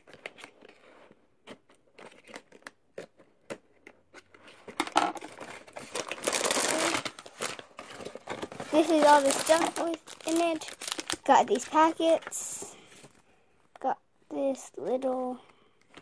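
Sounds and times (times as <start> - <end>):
cardboard rustling and tearing: 5.2 - 12.3.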